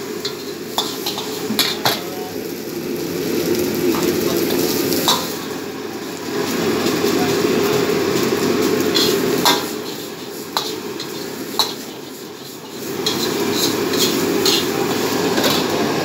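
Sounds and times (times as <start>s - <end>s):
gas burner rushing: 0.0s - 16.0s
metal ladle scraping a wok: 0.2s - 1.6s, 8.0s - 15.8s.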